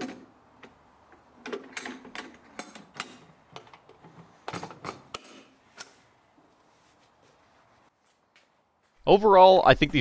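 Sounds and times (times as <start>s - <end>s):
metal lid clicks and clunks: 1.4s - 5.5s.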